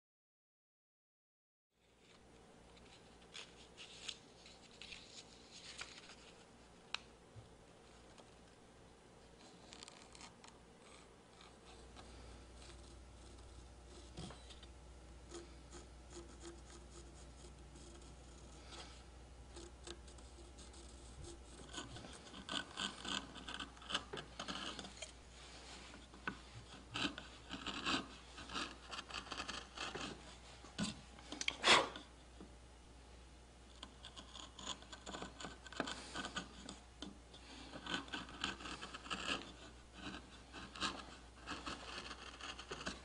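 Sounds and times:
carving tool scraping wood: 9.4s - 32.5s, 33.7s - 43.0s.

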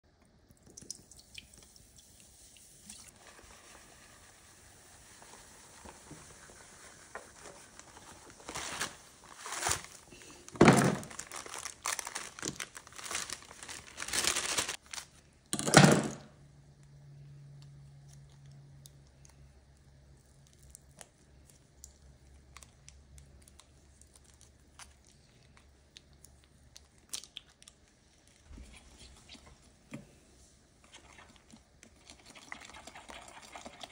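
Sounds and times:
plastic bag crinkling: 7.1s - 15.2s.

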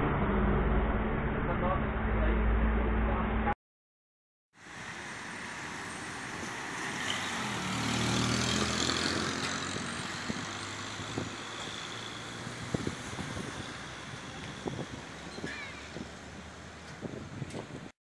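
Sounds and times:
truck diesel engine passing: 4.6s - 16.9s
car passing: 4.6s - 17.0s.

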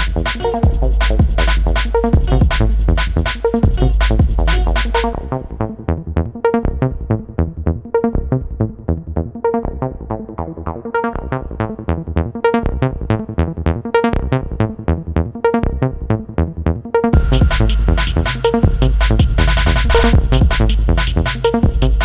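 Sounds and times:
drums and bass: 0.0s - 5.3s, 17.2s - 22.0s
plucked synthesizer melody: 0.0s - 5.9s, 17.2s - 22.0s.

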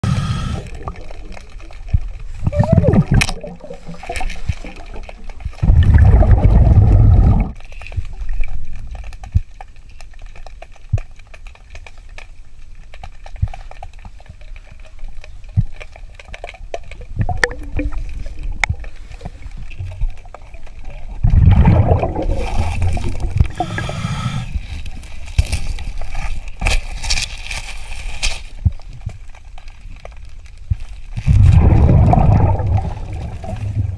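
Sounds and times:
regulator breathing hiss: 0.0s - 0.6s, 23.5s - 24.6s
underwater bubbles gurgling: 0.0s - 9.6s, 13.4s - 26.1s, 30.2s - 33.9s.

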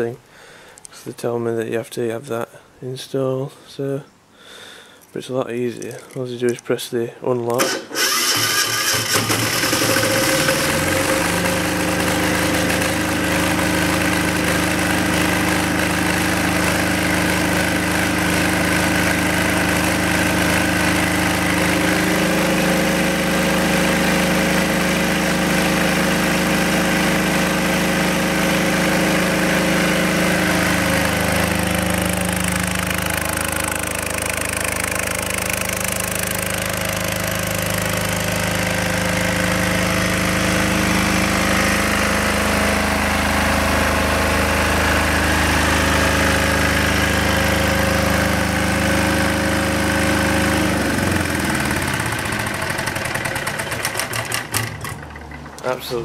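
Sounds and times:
diesel generator running: 7.5s - 56.0s.

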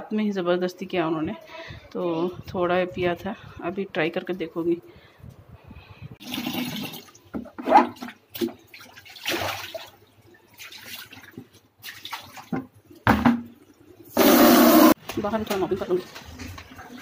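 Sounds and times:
tap water running into bucket: 6.2s - 7.5s
splashes and bucket knocks: 6.3s - 13.6s.

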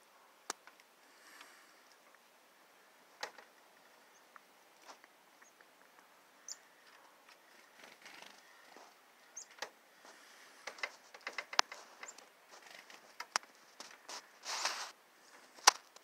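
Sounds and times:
high bird chirps: 6.4s - 6.7s, 9.2s - 9.6s.

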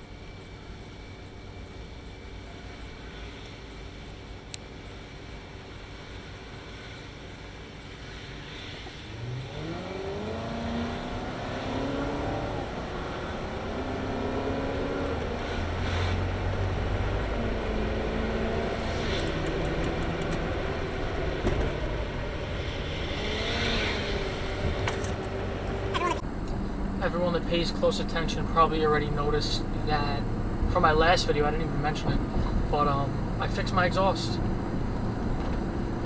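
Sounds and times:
car engine accelerating: 9.0s - 28.6s.

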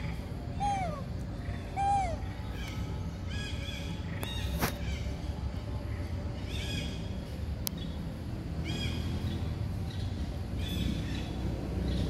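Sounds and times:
short animal calls: 0.6s - 1.0s, 1.8s - 2.3s.

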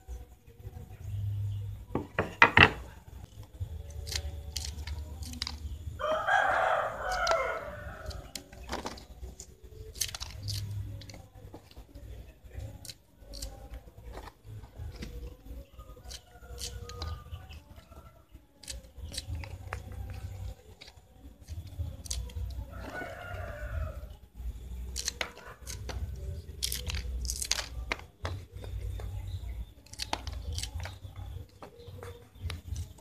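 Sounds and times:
knocks on wooden cutting board: 1.9s - 2.8s.

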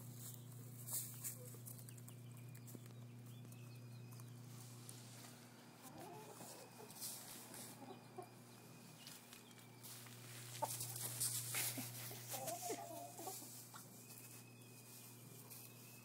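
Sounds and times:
rustling and scuffing in straw: 0.0s - 1.7s, 4.4s - 5.6s, 6.2s - 7.9s, 8.9s - 16.0s
hens clucking: 0.0s - 15.8s.

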